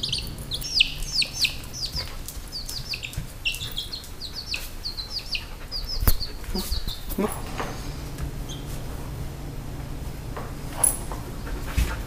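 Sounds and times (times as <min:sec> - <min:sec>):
baby chick peeping: 0:00.0 - 0:07.3.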